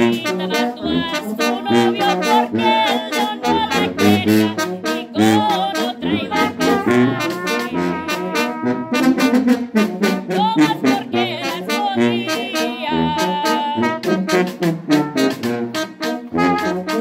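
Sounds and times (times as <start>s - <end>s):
percussion strokes: 0.0s - 9.6s
brass band playing: 0.0s - 17.0s.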